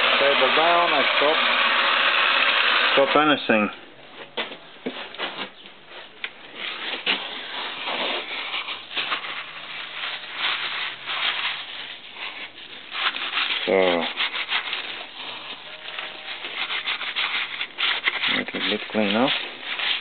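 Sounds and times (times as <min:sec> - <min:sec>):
cloth rag rubbing on metal: 0:06.6 - 0:20.0.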